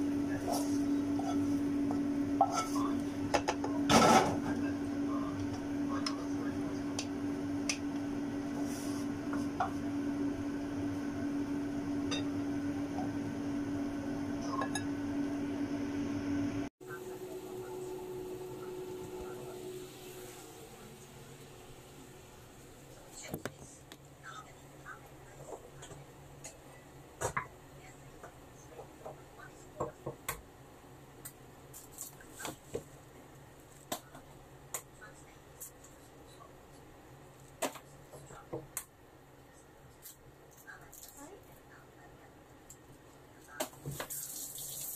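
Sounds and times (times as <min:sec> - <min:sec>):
steady electric hum: 0:00.0 - 0:28.6
dishes being handled: 0:02.4 - 0:04.5.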